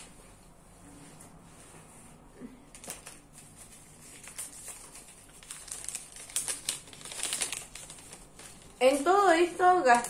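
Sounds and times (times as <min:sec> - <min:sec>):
paper receipt rustling: 0:02.7 - 0:10.0.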